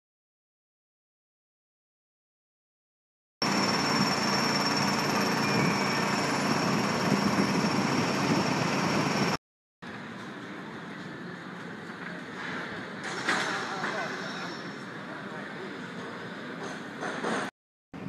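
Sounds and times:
engine running with high whine: 3.4 - 13.0
outdoor background noise: 3.4 - 18.0.

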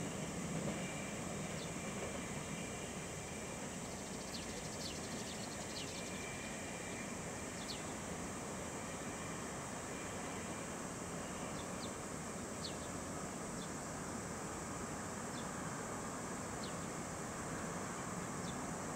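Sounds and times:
insect drone: 0.0 - 18.9.

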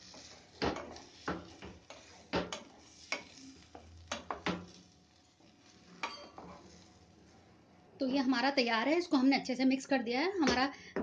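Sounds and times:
spatula scraping frying pan: 0.0 - 7.1
spatula knocking against pan: 0.6 - 3.3.

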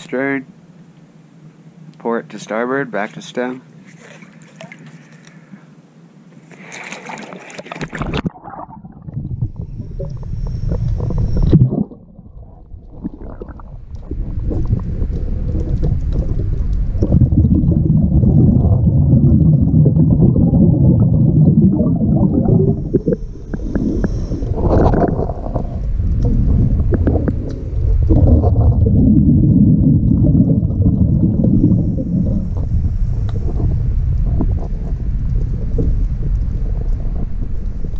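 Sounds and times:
water splashing: 3.8 - 5.5, 6.4 - 37.9
exhaled bubbles gurgling underwater: 6.6 - 37.9
regulator inhalation hiss: 22.7 - 24.6.

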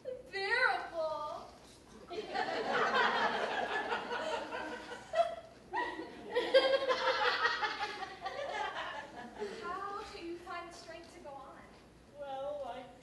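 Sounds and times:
audience laughing: 2.1 - 9.6.

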